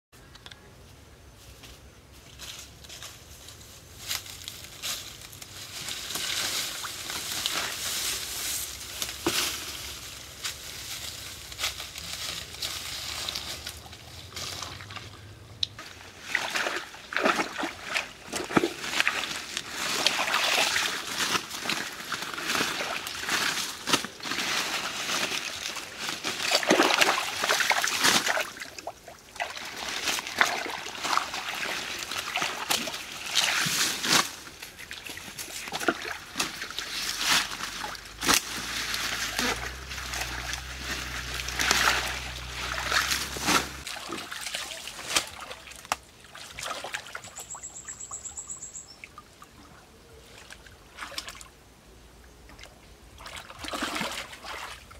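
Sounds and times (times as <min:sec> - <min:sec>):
leaves and stems rustling: 0:01.3 - 0:47.8
water splashing and sloshing: 0:11.6 - 0:48.2, 0:49.0 - 0:51.6, 0:52.5 - 0:54.9.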